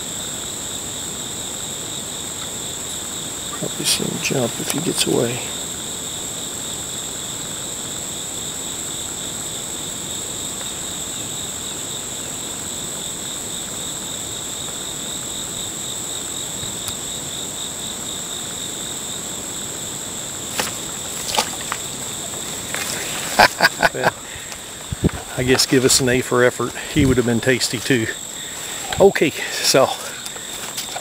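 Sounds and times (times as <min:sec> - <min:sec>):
high-pitched insect chorus trilling: 0:00.0 - 0:31.0
short sharp rustles: 0:20.5 - 0:23.5.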